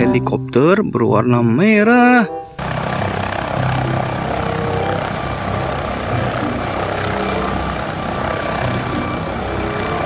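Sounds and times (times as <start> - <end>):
helicopter hovering: 2.1 - 10.0.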